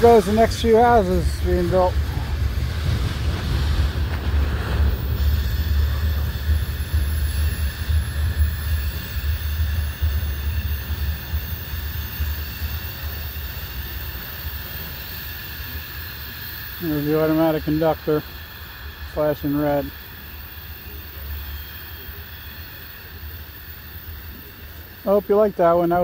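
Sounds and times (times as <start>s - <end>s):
freight train rumbling past: 0.0s - 26.0s.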